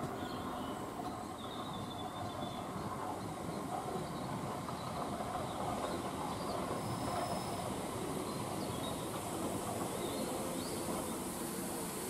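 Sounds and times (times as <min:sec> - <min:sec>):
train wheels on rail: 0:00.0 - 0:12.0.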